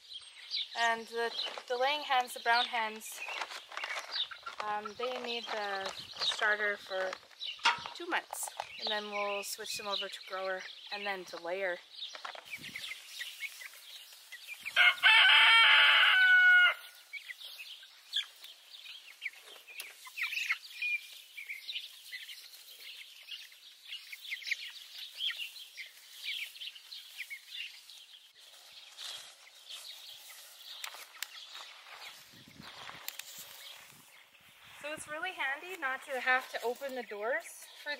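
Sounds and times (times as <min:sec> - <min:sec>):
chicks peeping and chirping: 0:00.0 - 0:37.9
loud crow-like call: 0:14.8 - 0:16.9.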